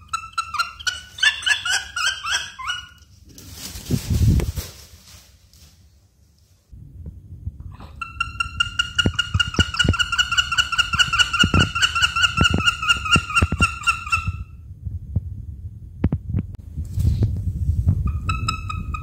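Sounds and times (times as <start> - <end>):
low thumps and rumble: 6.8 - 8.0, 14.3 - 19.0.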